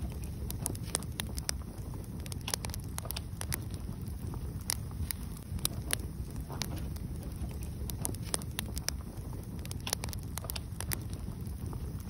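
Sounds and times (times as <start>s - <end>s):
fire crackling and popping: 0.0s - 12.0s
low rush of fire: 0.0s - 12.0s.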